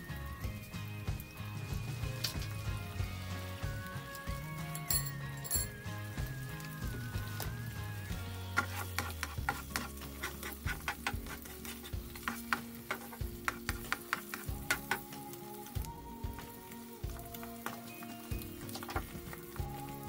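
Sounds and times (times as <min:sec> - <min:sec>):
butter sizzling in a frying pan: 0:00.0 - 0:20.0
spatula scraping a pan: 0:08.3 - 0:15.0.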